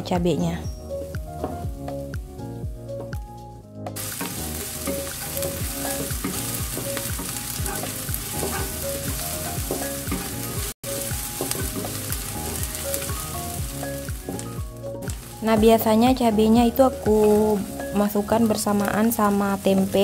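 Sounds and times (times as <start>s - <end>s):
shallots and garlic sizzling in oil: 0.0s - 3.1s, 4.0s - 20.0s
light background music: 0.0s - 20.0s
wooden spatula scraping a pan: 4.1s - 12.1s.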